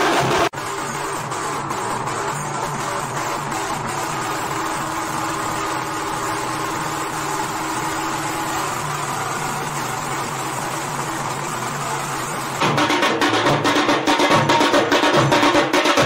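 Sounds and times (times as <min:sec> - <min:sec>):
barrel drums playing: 0:12.6 - 0:16.0.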